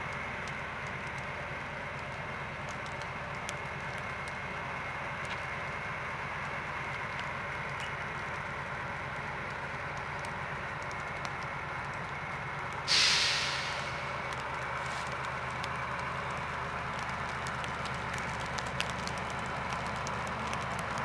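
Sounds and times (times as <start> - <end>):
diesel engine idling: 0.0 - 21.0
compressed air hiss: 12.9 - 14.2.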